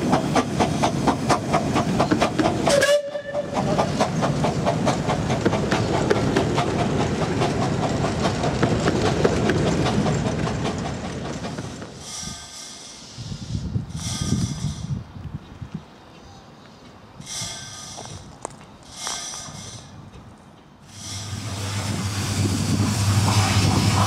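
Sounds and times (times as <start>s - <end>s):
carriages rumbling and clattering: 0.0s - 12.7s
steam locomotive exhaust beating: 0.0s - 15.1s, 16.8s - 24.0s
steam whistle toot: 2.7s - 3.5s.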